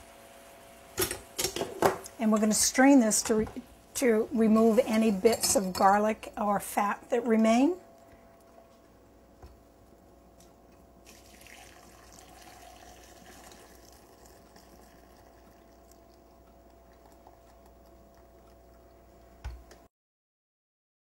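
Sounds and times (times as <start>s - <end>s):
liquid trickle: 11.0s - 19.4s.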